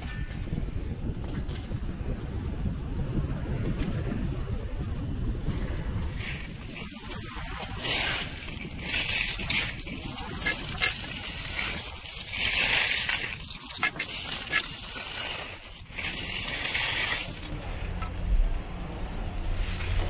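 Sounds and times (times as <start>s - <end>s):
wind rumble on microphone: 0.0s - 20.0s
skis hissing on snow: 6.2s - 17.4s.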